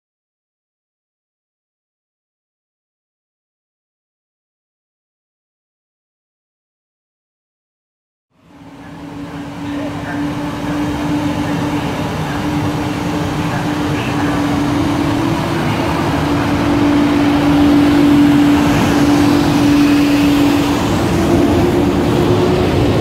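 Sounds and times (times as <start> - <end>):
electric locomotive whine: 8.3 - 23.0
train wheels rumbling: 8.4 - 23.0.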